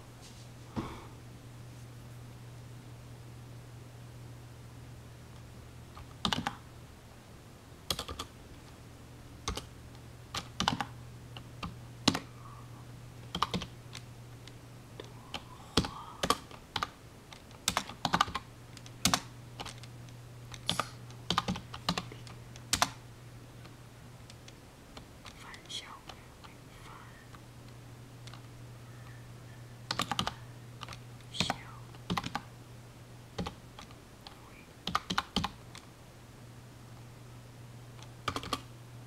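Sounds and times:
steady low hum: 0:00.0 - 0:39.0
keyboard keystrokes: 0:06.0 - 0:06.6, 0:07.9 - 0:08.3, 0:10.3 - 0:10.9, 0:13.3 - 0:13.7, 0:15.8 - 0:19.9, 0:20.5 - 0:23.0, 0:29.9 - 0:32.5, 0:34.8 - 0:35.6, 0:38.2 - 0:38.7.

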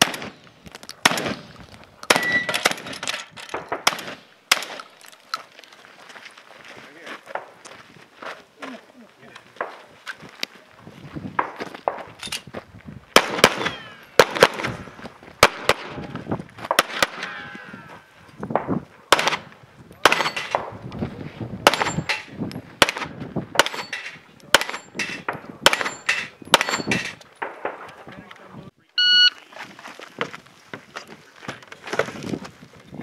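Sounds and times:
gunshots: 0:00.0 - 0:00.4, 0:01.0 - 0:01.5, 0:02.1 - 0:04.9, 0:13.2 - 0:17.6, 0:18.6 - 0:20.8, 0:21.6 - 0:27.9
ringing steel target: 0:02.1 - 0:02.8, 0:21.7 - 0:22.4, 0:23.6 - 0:27.2.

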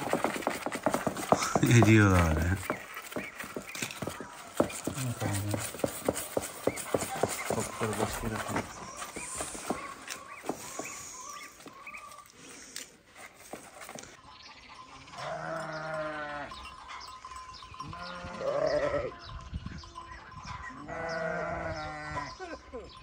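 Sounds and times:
sheep bleating: 0:15.1 - 0:16.6, 0:17.9 - 0:19.3, 0:20.8 - 0:22.6.

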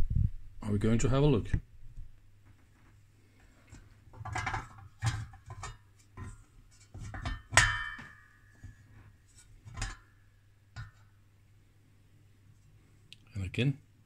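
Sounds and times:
metal lid clanking and clicking: 0:04.1 - 0:08.9, 0:09.6 - 0:10.2, 0:10.8 - 0:11.1
metal knock ringing: 0:07.2 - 0:08.4.

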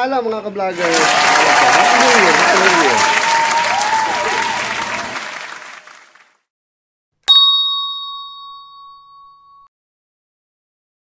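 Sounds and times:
applause: 0:00.7 - 0:06.5
hand bell ringing: 0:07.3 - 0:09.7.

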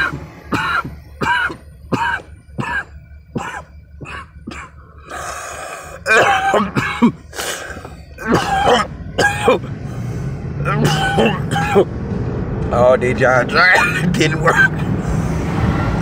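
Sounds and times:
man coughing: 0:00.0 - 0:04.8, 0:06.0 - 0:07.4, 0:08.2 - 0:09.7, 0:10.7 - 0:11.9, 0:13.6 - 0:14.8
car cabin hum: 0:00.0 - 0:16.0.

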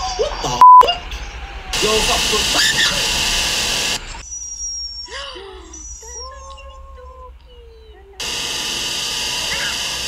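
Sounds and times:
loud steady hiss: 0:01.8 - 0:04.2, 0:08.2 - 0:10.0.

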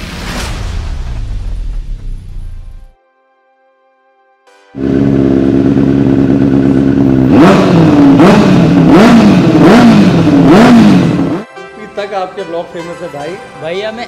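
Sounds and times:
motorcycle engine idling and revving: 0:04.8 - 0:11.4.

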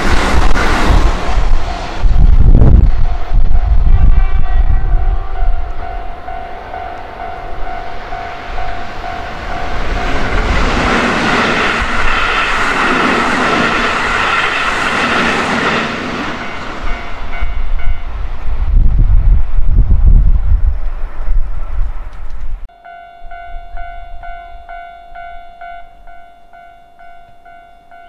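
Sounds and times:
train wheels on rails: 0:00.0 - 0:03.9, 0:05.4 - 0:22.5
steady high tone: 0:00.0 - 0:18.1, 0:22.7 - 0:28.0
electric train passing: 0:00.0 - 0:28.0.

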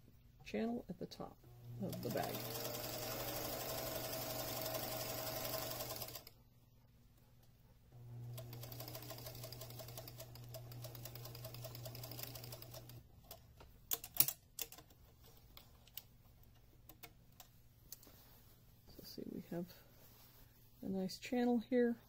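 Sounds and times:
sewing machine stitching: 0:01.6 - 0:06.3, 0:08.2 - 0:13.0.

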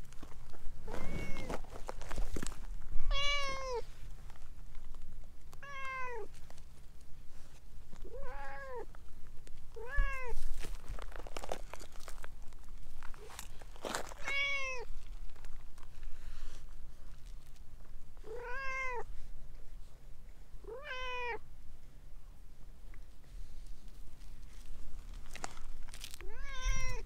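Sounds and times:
light rustling and scuffing: 0:00.0 - 0:03.1, 0:09.2 - 0:17.9, 0:23.1 - 0:27.0
cat meowing: 0:00.9 - 0:01.5, 0:03.1 - 0:03.8, 0:05.6 - 0:06.3, 0:08.0 - 0:08.9, 0:09.8 - 0:10.4, 0:14.2 - 0:14.9, 0:18.2 - 0:19.1, 0:20.6 - 0:21.4, 0:26.2 - 0:27.0.

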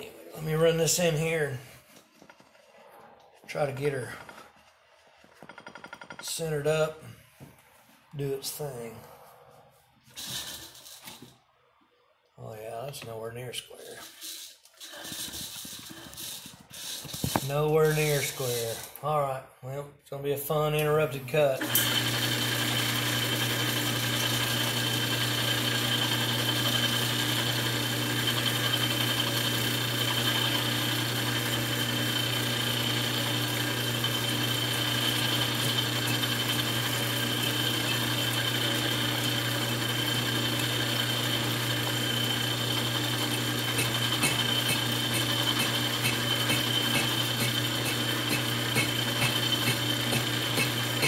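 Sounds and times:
metal lathe humming and whining: 0:21.6 - 0:51.0.

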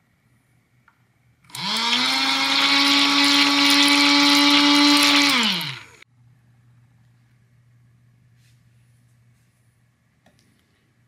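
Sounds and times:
small electric motor whining: 0:01.5 - 0:06.0.

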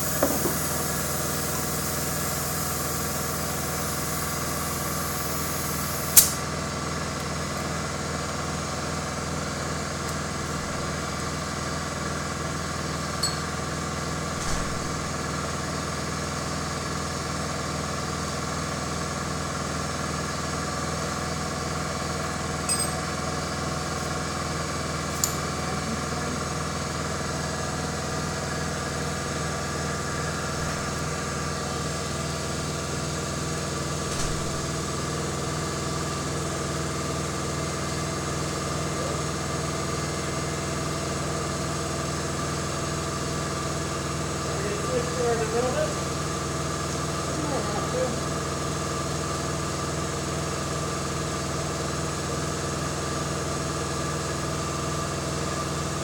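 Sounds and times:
spray gun trigger click: 0:00.0 - 0:01.0, 0:05.9 - 0:06.4
paint spray gun hissing: 0:00.0 - 0:06.5
steady mechanical hum: 0:00.0 - 0:56.0.

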